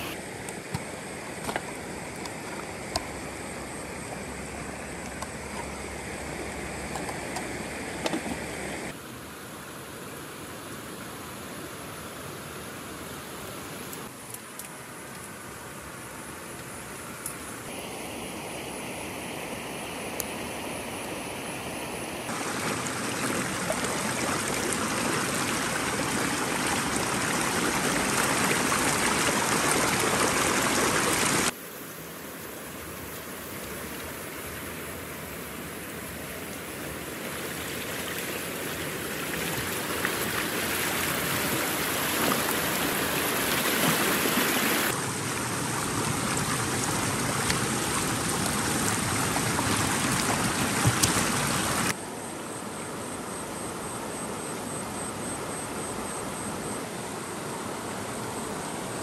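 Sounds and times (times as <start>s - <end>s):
running water rushing: 0.0s - 9.0s, 17.7s - 31.6s, 33.0s - 52.0s.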